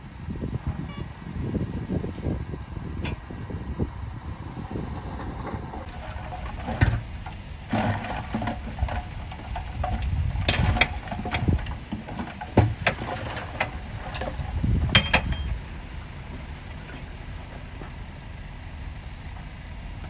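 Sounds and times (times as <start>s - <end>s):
truck engine rumble: 0.0s - 20.0s
soil sliding out: 4.4s - 18.0s
sharp knocks and clanks: 5.8s - 15.6s.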